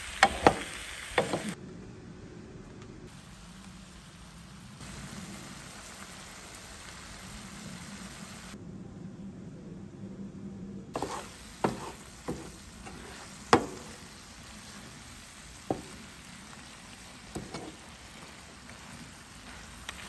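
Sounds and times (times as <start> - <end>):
vegetables sizzling in a frying pan: 0.0 - 1.6, 3.1 - 8.6, 11.0 - 20.0
wooden spoon scraping a pan: 11.0 - 20.0.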